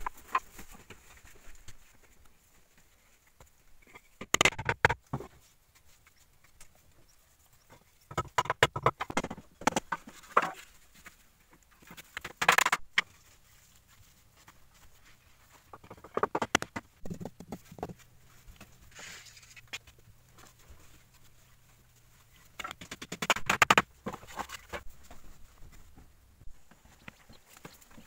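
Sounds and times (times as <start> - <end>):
soft rustle: 0.0 - 4.1, 5.3 - 8.1, 10.0 - 12.0, 13.0 - 15.8, 17.0 - 22.6, 24.1 - 28.0.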